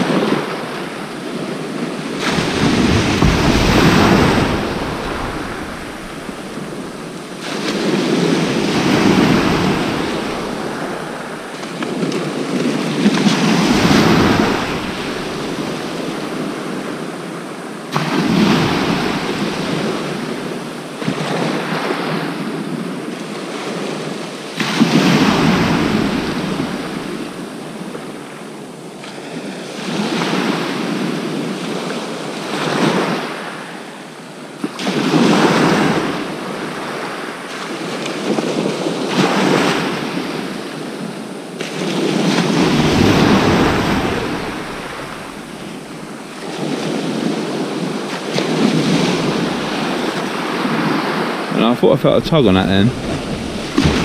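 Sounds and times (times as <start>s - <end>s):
waves breaking on shingle beach: 0.0s - 28.4s, 34.6s - 54.0s
wind buffeting microphone: 1.4s - 17.2s, 52.2s - 54.0s.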